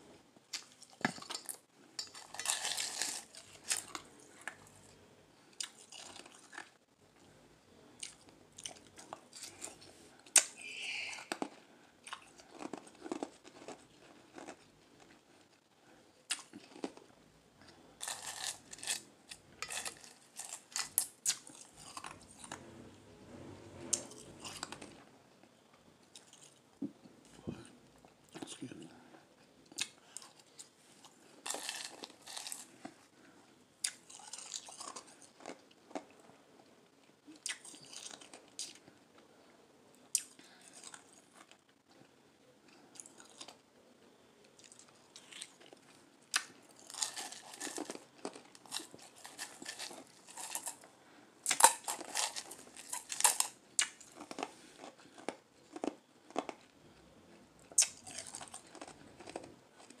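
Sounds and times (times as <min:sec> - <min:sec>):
crushed ice being chewed: 0:00.5 - 0:04.9, 0:05.6 - 0:06.8, 0:08.0 - 0:15.6, 0:18.0 - 0:22.7, 0:29.8 - 0:33.1, 0:33.8 - 0:36.2, 0:37.4 - 0:38.9, 0:44.6 - 1:00.0.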